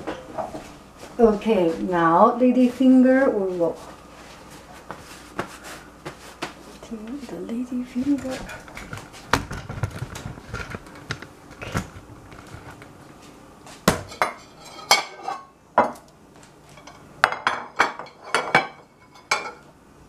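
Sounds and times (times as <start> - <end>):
dishes clattering on tile: 14.0 - 16.0, 16.7 - 19.7.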